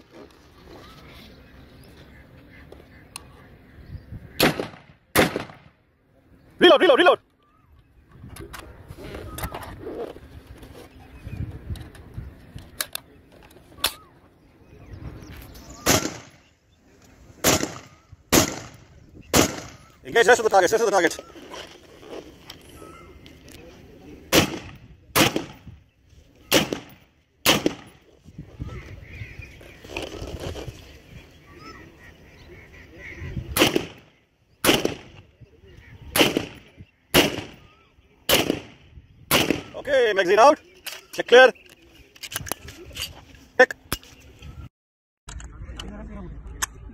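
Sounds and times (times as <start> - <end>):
rifle shots: 4.4 - 5.7, 15.8 - 16.4, 17.4 - 19.9, 24.3 - 25.7, 26.5 - 28.0, 33.5 - 35.2, 36.1 - 37.7, 38.3 - 39.8.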